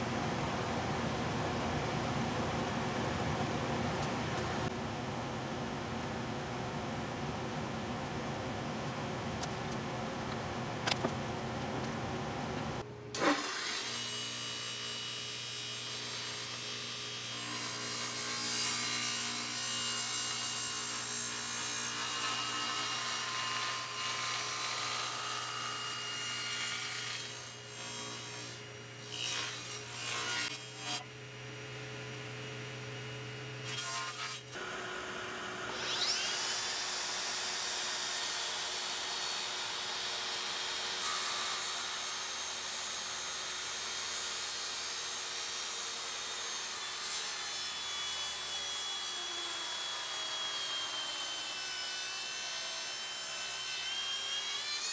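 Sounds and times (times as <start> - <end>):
table saw cutting wood: 13.2 - 31.1, 33.5 - 54.9.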